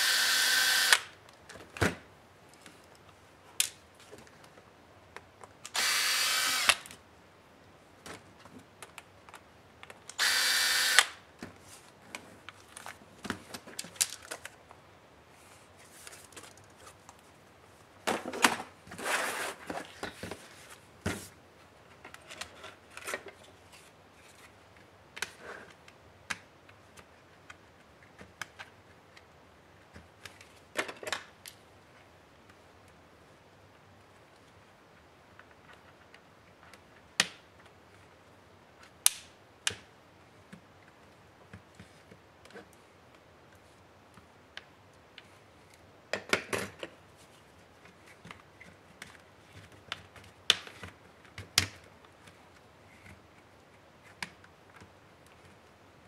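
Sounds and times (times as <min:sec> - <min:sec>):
cordless drill driving screws: 0:00.0 - 0:01.1, 0:05.7 - 0:06.9, 0:10.2 - 0:11.2.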